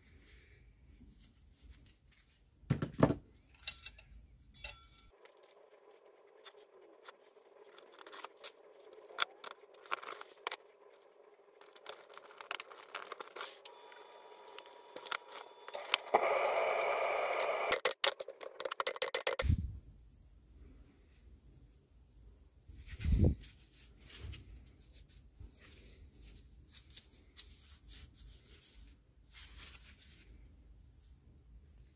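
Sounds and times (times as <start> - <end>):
metal parts clinking and scraping: 3.4 - 5.6.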